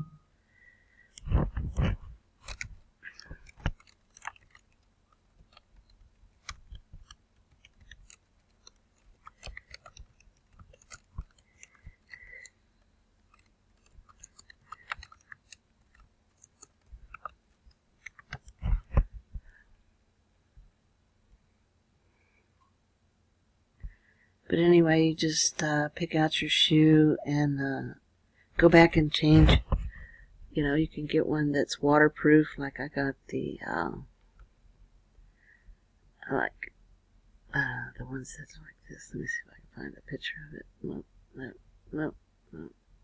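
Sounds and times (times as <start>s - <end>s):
computer mouse clicks: 1.1s - 12.6s, 13.2s - 19.1s
keyboard keystrokes: 13.3s - 17.4s.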